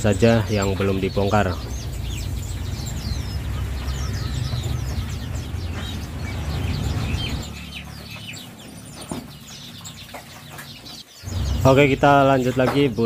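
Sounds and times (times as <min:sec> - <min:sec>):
low rumble: 0:00.0 - 0:07.7
caged birds chirping: 0:00.0 - 0:13.0.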